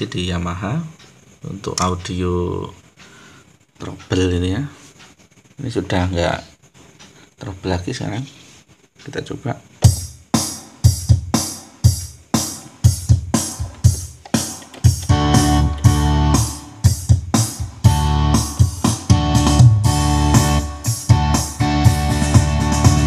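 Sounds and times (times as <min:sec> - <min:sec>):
keyboard drum beat: 0:09.8 - 0:23.0
sustained keyboard chords: 0:11.9 - 0:23.0.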